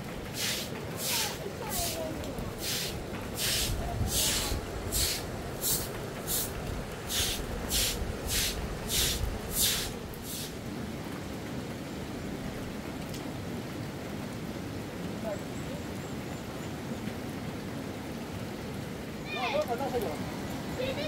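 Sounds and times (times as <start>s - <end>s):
steady rushing noise: 0.0s - 10.9s.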